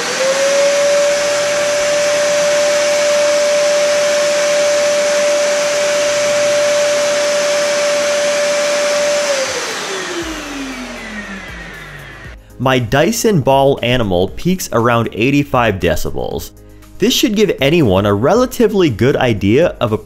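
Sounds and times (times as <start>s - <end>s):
vacuum cleaner motor whine: 0.0s - 12.4s.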